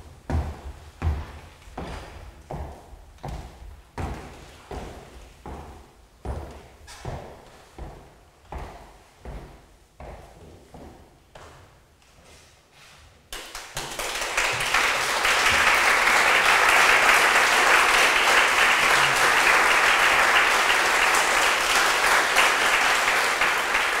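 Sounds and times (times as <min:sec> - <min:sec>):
audience applauding: 0:13.4 - 0:24.0.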